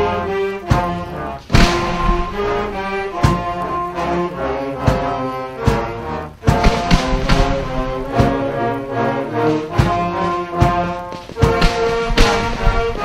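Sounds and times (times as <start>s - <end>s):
brass-led orchestra playing chords: 0.0s - 13.0s
sharp bangs: 0.7s - 4.0s, 6.4s - 13.0s.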